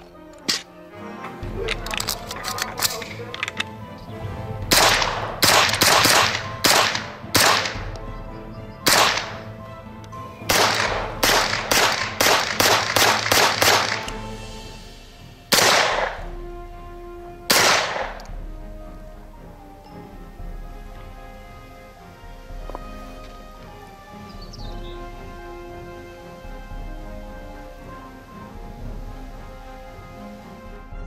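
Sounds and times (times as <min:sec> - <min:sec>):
gunshots: 0:04.7 - 0:08.0, 0:08.8 - 0:09.5, 0:10.5 - 0:14.3, 0:15.5 - 0:16.3, 0:17.5 - 0:18.3.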